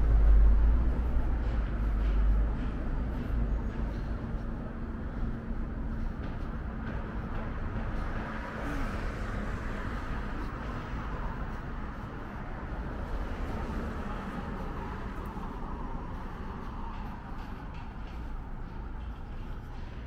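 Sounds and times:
road traffic passing: 0.0 - 20.0.

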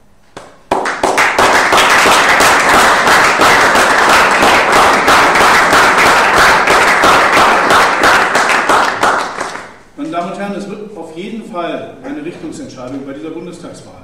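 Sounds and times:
audience applauding: 0.4 - 9.8.

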